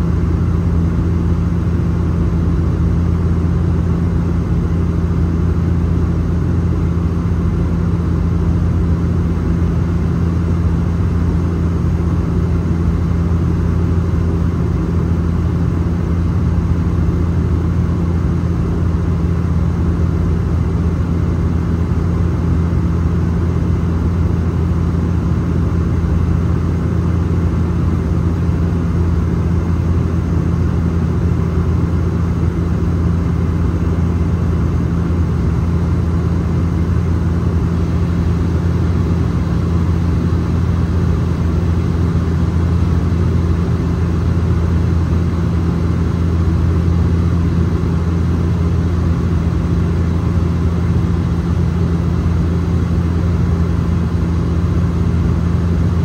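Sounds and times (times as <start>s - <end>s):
propeller engines droning: 0.0s - 56.0s.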